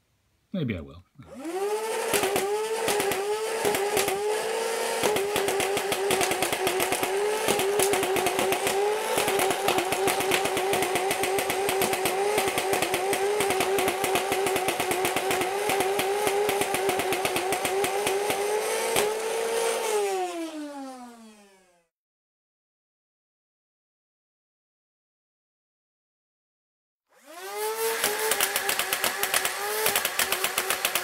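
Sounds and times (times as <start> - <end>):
flywheel motor whine: 1.3 - 21.8, 27.2 - 31.0
rapid clatter of toy blaster firing: 1.3 - 21.8, 27.2 - 31.0.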